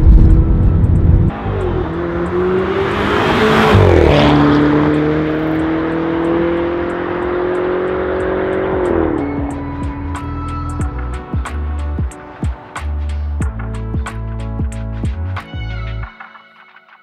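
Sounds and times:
music with ticking beat: 0:05.5 - 0:17.0.

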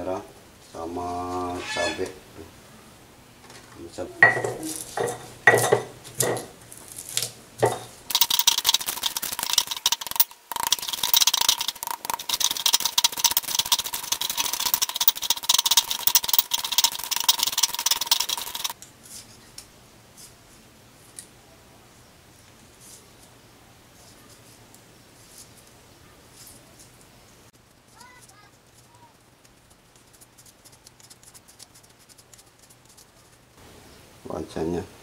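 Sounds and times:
gritty grinding in stone mortar: 0:04.4 - 0:18.8.

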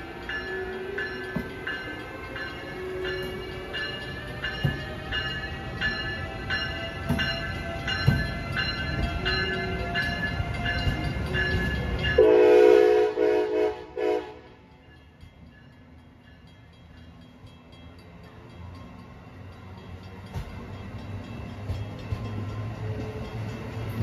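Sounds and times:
train wheels clattering: 0:00.0 - 0:13.0, 0:14.7 - 0:24.0
passenger train rumbling past: 0:00.0 - 0:24.0
train horn blast: 0:12.2 - 0:14.6.

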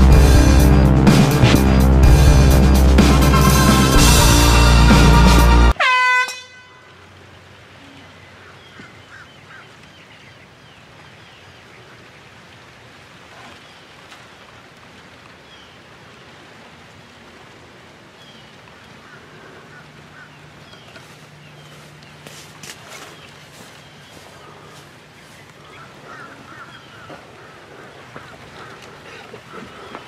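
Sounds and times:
air horn blast: 0:00.0 - 0:06.9.

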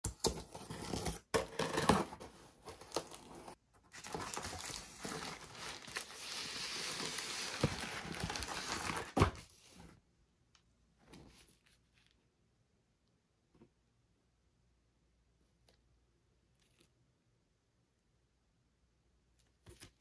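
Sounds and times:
bubble wrap crinkling: 0:02.9 - 0:09.3.

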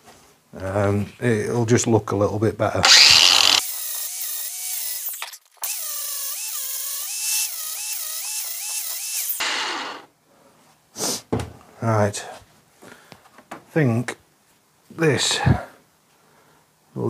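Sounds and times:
angle grinder grinding steel: 0:02.8 - 0:10.1.

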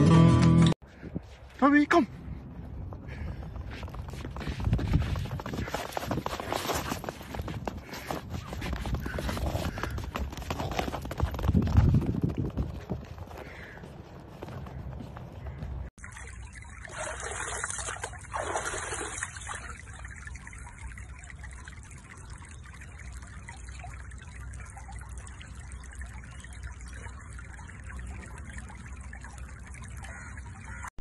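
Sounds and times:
water splashing and trickling: 0:15.4 - 0:31.0.

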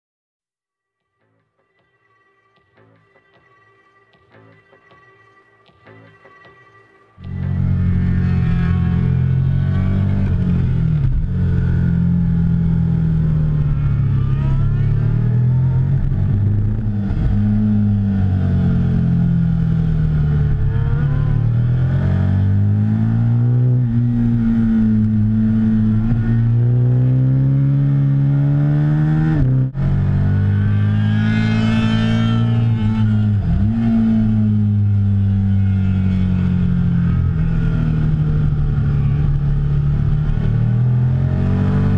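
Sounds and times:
motorcycle engine revving: 0:07.2 - 0:41.9.

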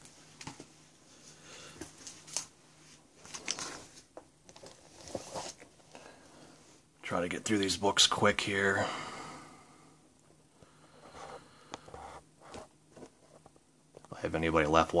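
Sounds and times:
plastic sleeves crinkling: 0:01.9 - 0:06.1.

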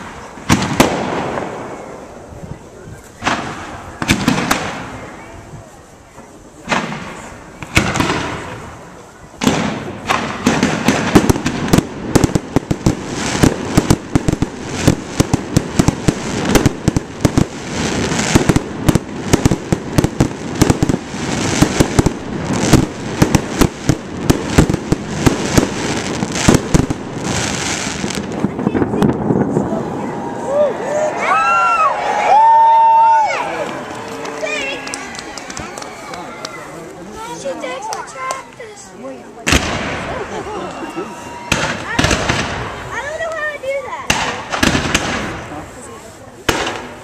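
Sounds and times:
rapid firework bangs and crackling: 0:00.0 - 0:30.0, 0:39.4 - 0:47.0.

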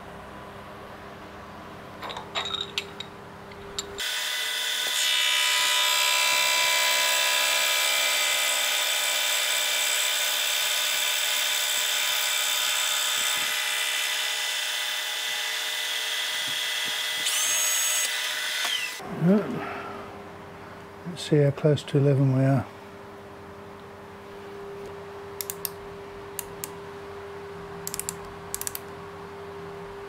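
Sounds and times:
milling machine whine: 0:16.6 - 0:19.1.

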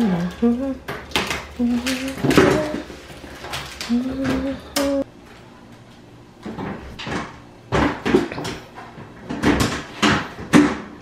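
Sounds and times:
plastic bins knocking and clattering: 0:00.9 - 0:04.6, 0:06.4 - 0:11.0.

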